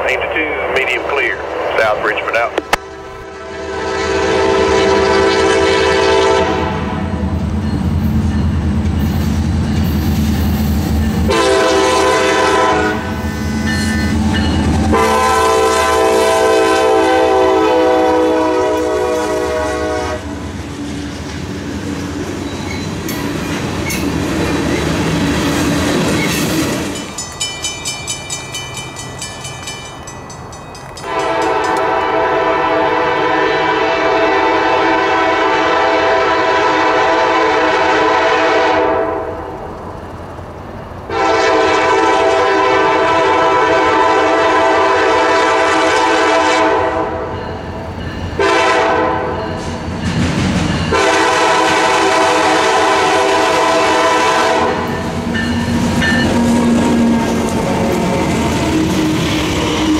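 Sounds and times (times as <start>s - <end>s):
locomotive engine rumble: 0.0s - 3.3s
locomotive horn blasts: 2.7s - 7.2s, 11.3s - 13.8s, 14.9s - 20.4s, 31.0s - 39.4s, 41.1s - 47.3s, 48.4s - 49.5s, 50.9s - 54.9s
train wheels clattering: 20.4s - 32.0s, 49.5s - 52.5s.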